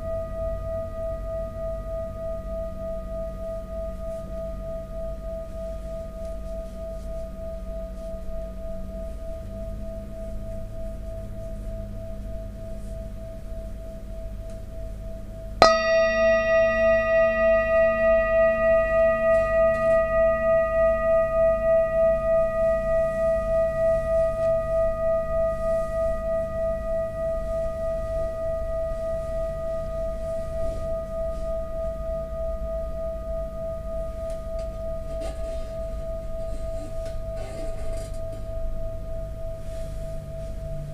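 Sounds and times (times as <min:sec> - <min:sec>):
singing bowl ringing: 0:00.0 - 0:40.9
mallet striking singing bowl: 0:15.6 - 0:29.2.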